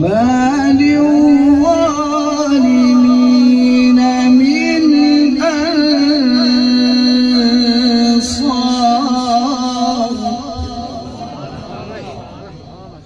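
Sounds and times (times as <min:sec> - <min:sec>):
man chanting melodically: 0:00.0 - 0:13.0.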